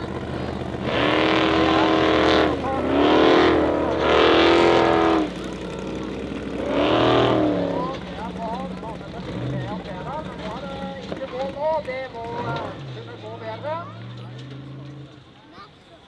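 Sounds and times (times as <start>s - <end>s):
car engine revving hard: 0.0s - 10.5s.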